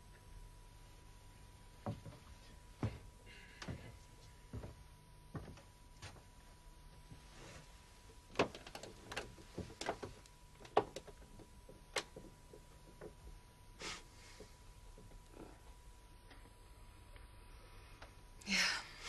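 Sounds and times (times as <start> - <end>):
footsteps walking: 1.8 - 6.3.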